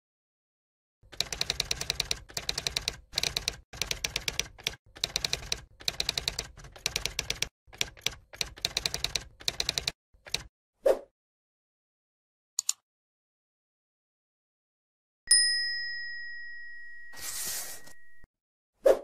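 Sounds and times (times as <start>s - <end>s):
typewriter key clicks: 1.1s - 10.5s.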